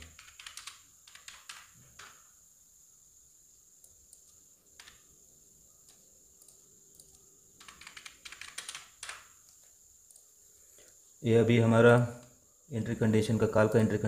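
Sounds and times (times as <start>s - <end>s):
faint computer keyboard typing: 0.0s - 2.3s, 3.8s - 5.1s, 5.8s - 11.0s.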